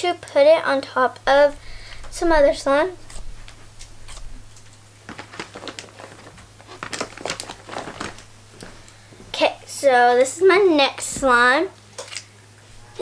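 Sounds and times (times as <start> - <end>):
small crackles and clicks: 3.1 - 9.0.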